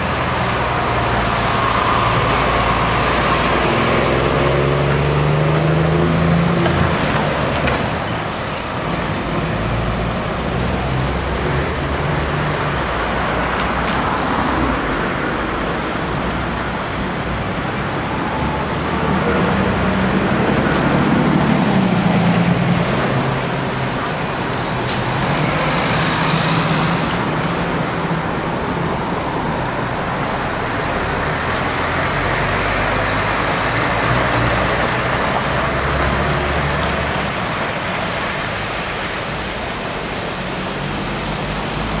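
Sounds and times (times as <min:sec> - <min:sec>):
passing car traffic: 0:00.0 - 0:42.0
tyre noise on wet road: 0:00.0 - 0:42.0.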